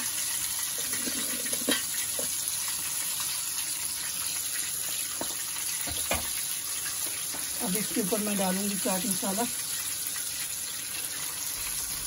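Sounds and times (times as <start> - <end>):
oil sizzling in frying pan: 0.0 - 12.0.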